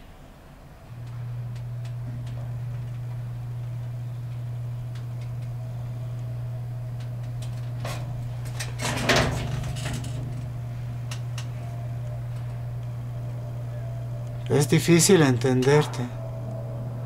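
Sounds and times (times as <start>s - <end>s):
steady low hum: 0.0s - 17.0s
clicks and rattles: 7.0s - 12.9s.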